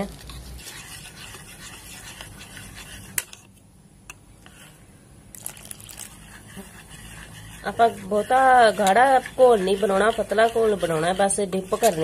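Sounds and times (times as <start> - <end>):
whisk beating batter: 0.0 - 3.6, 4.4 - 12.0
whisk wires clicking on bowl: 5.3 - 12.0.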